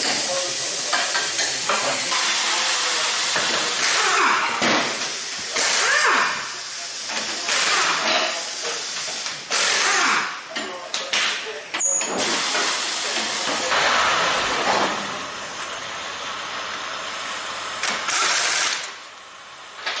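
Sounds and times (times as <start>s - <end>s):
air tool bursts winding down: 2.1s - 6.8s, 7.4s - 8.3s, 9.0s - 10.4s, 17.8s - 19.1s.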